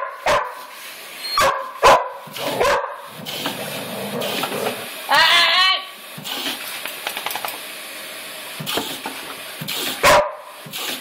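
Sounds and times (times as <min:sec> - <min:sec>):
water spraying into bucket: 0:06.0 - 0:11.0.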